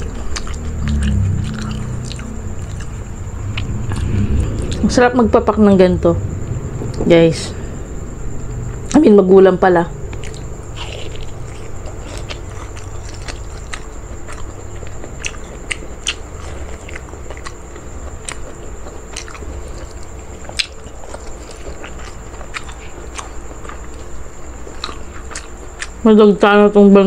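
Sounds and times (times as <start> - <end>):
chewing and biting: 0.0 - 3.7, 10.1 - 26.0.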